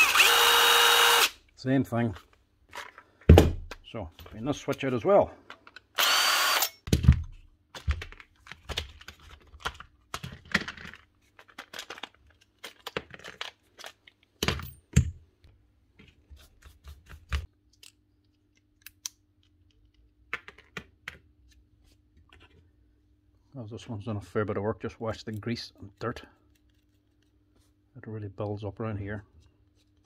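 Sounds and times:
plastic clicks and clatter: 7.8s - 14.6s.

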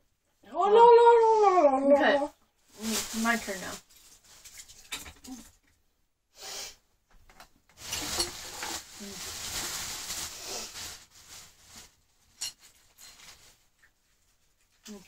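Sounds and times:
rustling and rummaging by hand: 2.6s - 5.6s, 7.2s - 15.0s.

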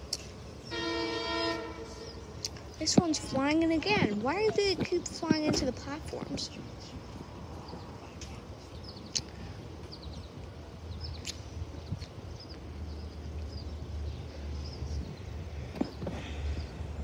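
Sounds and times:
train rumbling: 0.0s - 8.8s
bird chirps: 1.8s - 3.4s.

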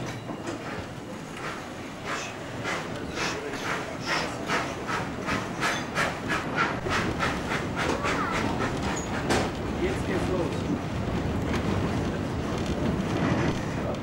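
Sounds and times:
steam locomotive chuffing: 0.0s - 10.9s.

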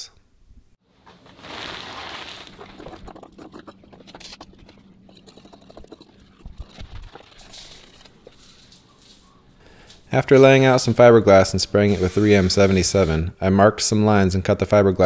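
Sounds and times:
burst of hiss: 11.8s - 13.3s.

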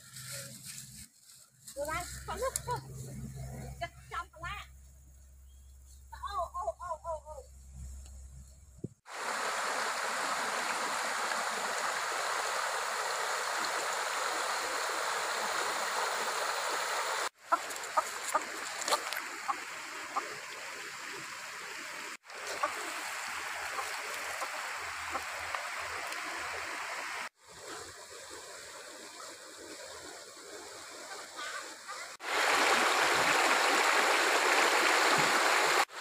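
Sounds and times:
stream rushing over rocks: 9.1s - 36.0s.

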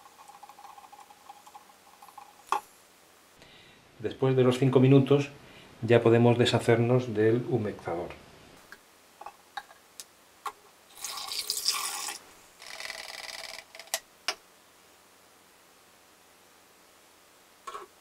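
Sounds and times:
liquid pouring through funnel: 0.0s - 2.5s, 10.9s - 13.0s
liquid trickling: 10.9s - 12.2s.

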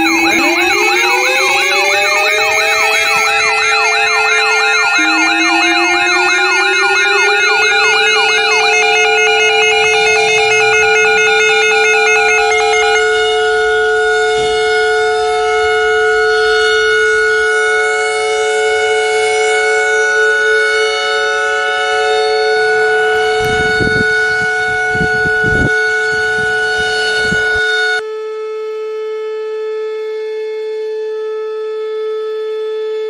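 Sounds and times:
warning siren steady tone: 0.0s - 33.0s
wind buffeting microphone: 23.2s - 27.8s.

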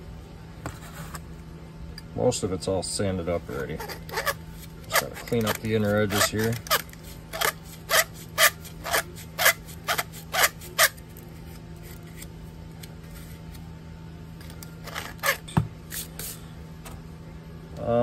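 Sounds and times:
hand tool scraping copper pipe: 3.6s - 11.0s, 14.8s - 16.4s.

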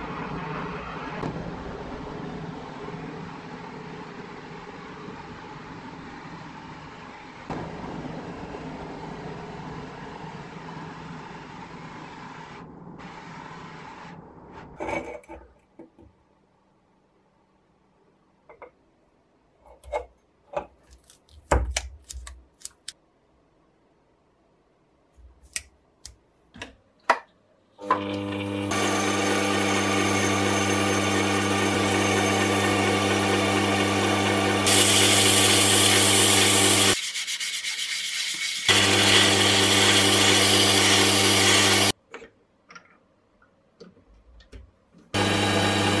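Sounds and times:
lathe humming: 27.9s - 37.0s, 38.7s - 41.9s, 45.2s - 46.0s
sandpaper rasping on metal: 36.6s - 38.7s.

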